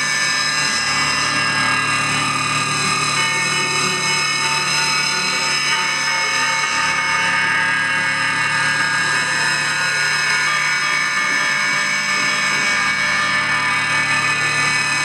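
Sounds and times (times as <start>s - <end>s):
harsh drone of high tones: 0.0s - 15.0s.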